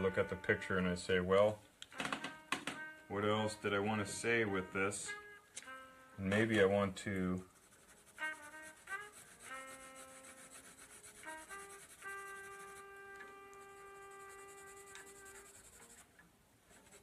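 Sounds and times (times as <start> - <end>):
pencil scratching on paper: 7.4 - 13.0, 13.6 - 16.1, 16.7 - 17.0.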